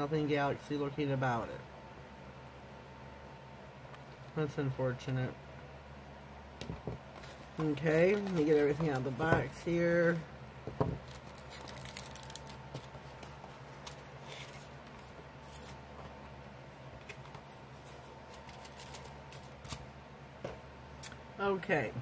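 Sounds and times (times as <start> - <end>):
faint steady hum: 0.0 - 22.0
packaging rustling: 7.1 - 10.2, 10.8 - 15.8, 17.0 - 19.8.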